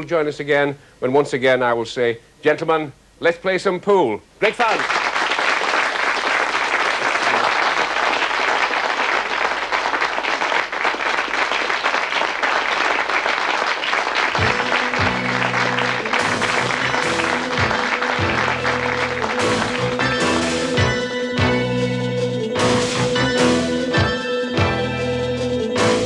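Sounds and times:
audience applauding: 4.5s - 21.0s
theme music with bass line: 14.4s - 26.0s.

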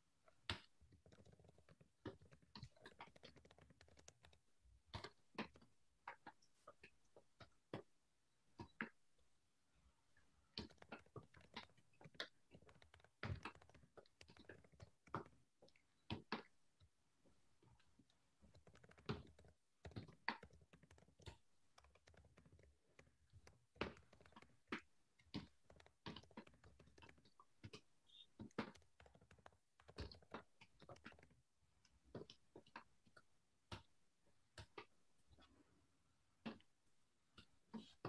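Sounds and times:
typing on computer keyboard: 0.6s - 4.4s, 10.6s - 15.4s, 18.4s - 31.4s.

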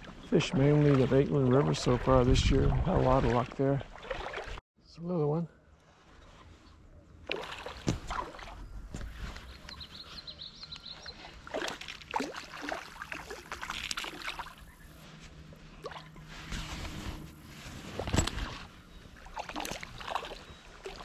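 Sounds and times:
fish splashing in water: 3.9s - 4.6s, 7.3s - 8.6s, 11.0s - 14.9s, 18.5s - 21.0s.

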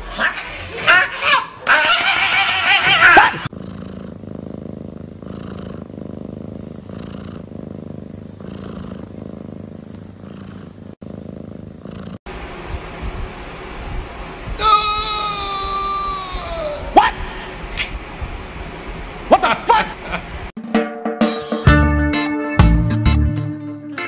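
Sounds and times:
cat crying: 0.0s - 3.5s
cat purring: 3.4s - 12.3s.

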